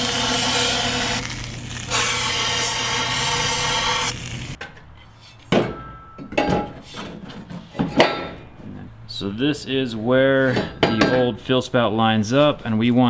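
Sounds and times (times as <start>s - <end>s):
power tool cutting metal: 0.0s - 4.6s.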